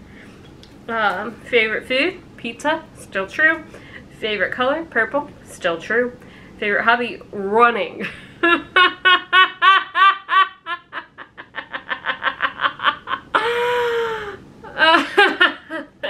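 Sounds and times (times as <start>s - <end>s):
woman laughing hard: 8.0s - 16.0s.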